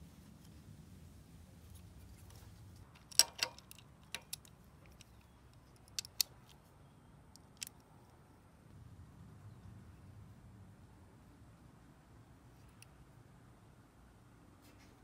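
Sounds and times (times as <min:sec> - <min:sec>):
plastic and metal parts clicking: 0:02.8 - 0:06.6, 0:07.3 - 0:07.9
ratchet turning a bolt: 0:03.0 - 0:05.1.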